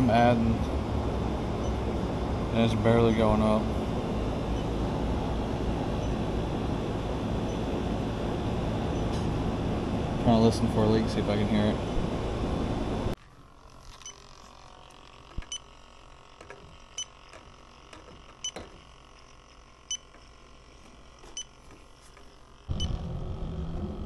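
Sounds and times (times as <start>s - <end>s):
steady outdoor noise: 0.0s - 19.7s
leak detector beeping: 1.6s - 2.0s, 4.5s - 4.8s, 5.9s - 6.3s, 7.4s - 7.8s, 8.9s - 9.2s, 19.8s - 20.2s, 22.7s - 23.2s.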